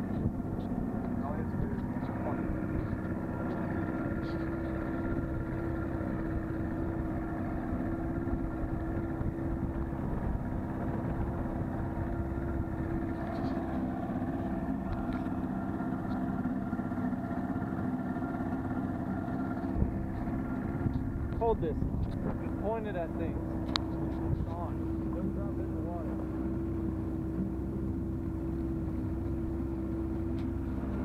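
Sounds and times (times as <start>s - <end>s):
outboard motor running: 0.0s - 31.0s.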